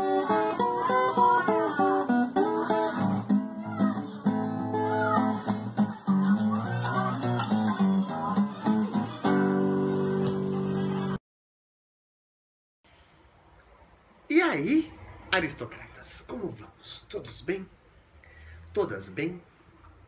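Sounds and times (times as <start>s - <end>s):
acoustic guitar plucked notes: 0.0s - 11.2s.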